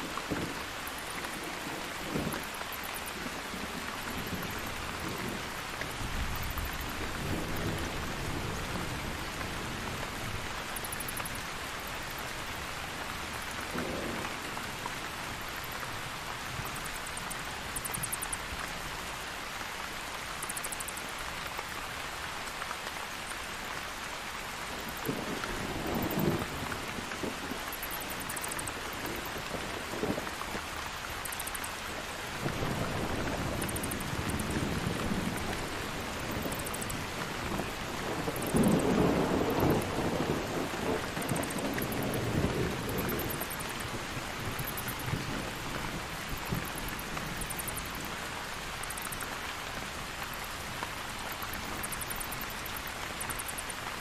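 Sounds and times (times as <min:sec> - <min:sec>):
heavy rain: 0:00.0 - 0:54.0
thunder rumbling: 0:32.4 - 0:47.5.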